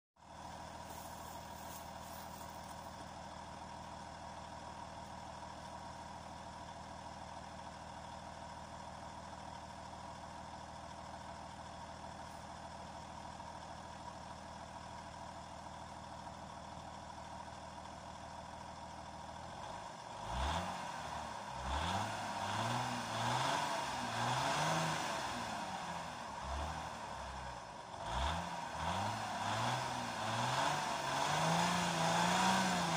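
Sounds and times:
car engine idling: 0:00.2 - 0:32.9
engine revving blips: 0:28.0 - 0:32.9.

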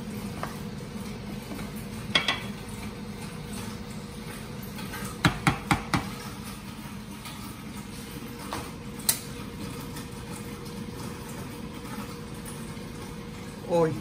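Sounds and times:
spatula knocking against pot: 0:02.1 - 0:02.5, 0:05.2 - 0:06.1.

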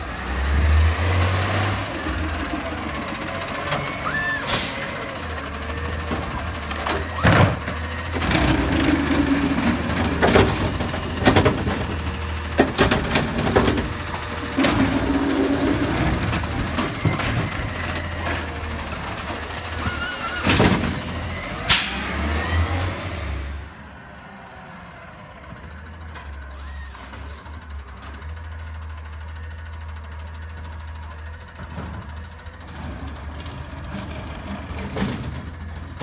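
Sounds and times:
garbage truck engine running: 0:00.0 - 0:36.0
cart and arm clunks and bangs: 0:05.6 - 0:22.5, 0:32.7 - 0:36.0.

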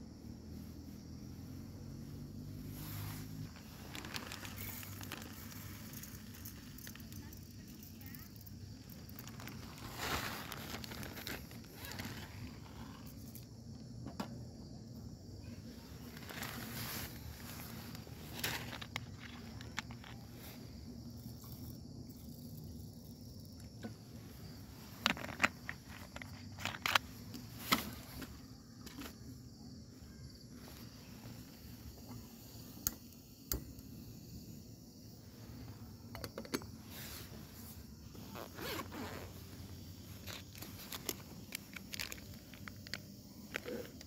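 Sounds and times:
zipper on soft bag: 0:38.1 - 0:41.0.

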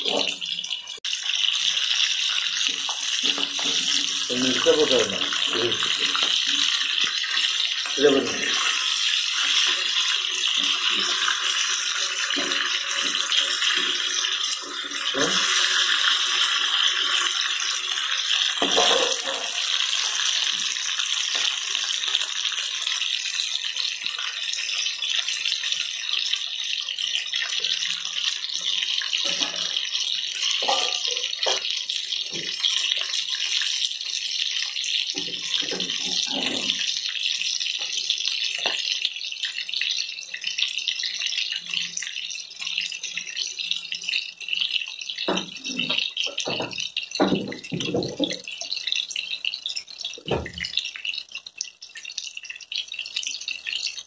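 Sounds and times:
chicken deep-frying in oil: 0:00.0 - 0:54.0.

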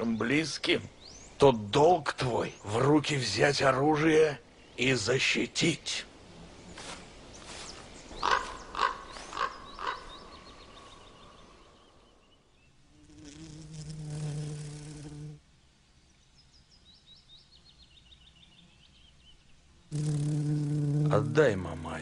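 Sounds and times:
birds chirping: 0:00.0 - 0:13.4, 0:14.9 - 0:20.4
bumblebee buzzing: 0:12.9 - 0:15.4, 0:19.9 - 0:21.8.

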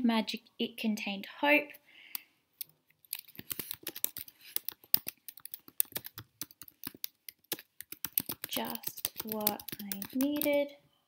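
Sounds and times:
computer keyboard typing: 0:03.0 - 0:10.6.

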